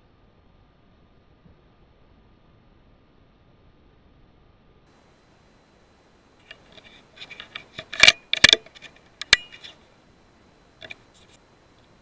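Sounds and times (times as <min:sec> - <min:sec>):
rifle metallic clicks: 0:06.4 - 0:09.8.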